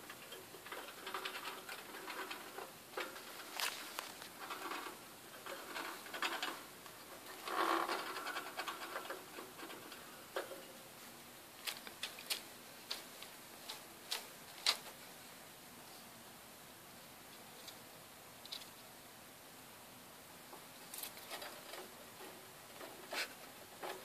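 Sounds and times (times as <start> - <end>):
hamster claws scrabbling: 0.1 - 10.5, 11.6 - 15.0.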